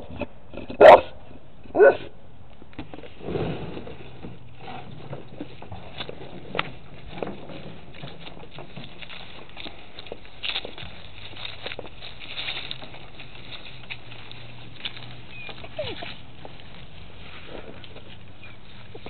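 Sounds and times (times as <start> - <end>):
dog barking: 0.8 - 1.1, 1.8 - 2.1
faint shuffling: 2.9 - 19.0.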